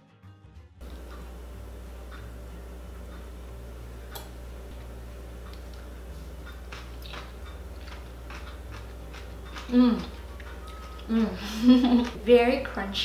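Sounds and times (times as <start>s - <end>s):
low steady hum: 0.8s - 13.0s
person chewing crunchy food: 4.8s - 12.2s.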